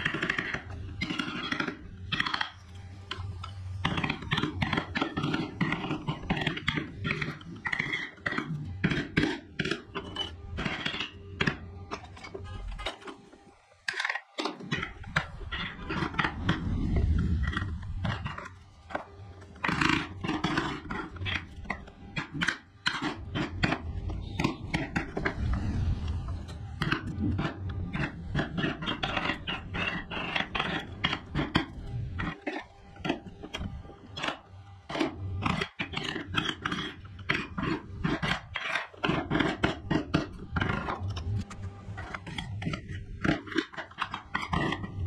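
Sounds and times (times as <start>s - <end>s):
carving tool scraping wood: 17.6s - 25.6s, 26.6s - 41.2s.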